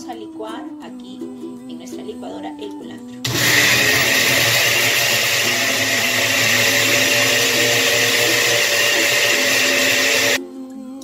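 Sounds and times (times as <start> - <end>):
blender running at high speed: 3.3 - 10.4.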